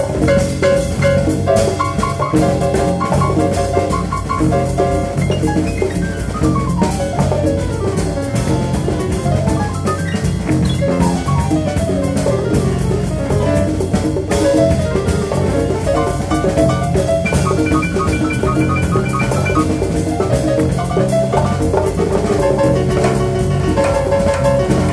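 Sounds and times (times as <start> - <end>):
drums: 0.0 - 24.9
jazz big band playing: 0.0 - 24.9
low bass: 0.0 - 24.9
piano runs: 0.0 - 24.9.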